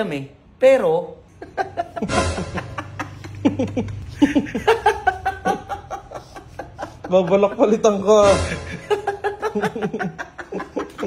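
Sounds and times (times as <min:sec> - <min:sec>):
man laughing hard: 0:01.5 - 0:11.0.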